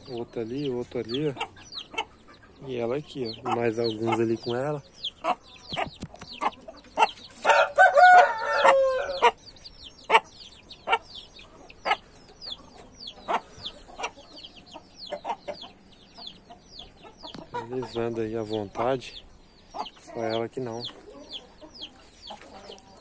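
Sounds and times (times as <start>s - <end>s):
chicks peeping: 0.0s - 23.0s
hen clucking: 0.0s - 23.0s
rooster crowing: 7.5s - 9.4s.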